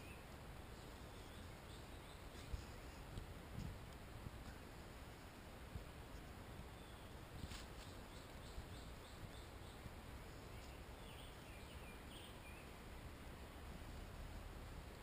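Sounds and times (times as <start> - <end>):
low hiss: 0.0 - 15.0.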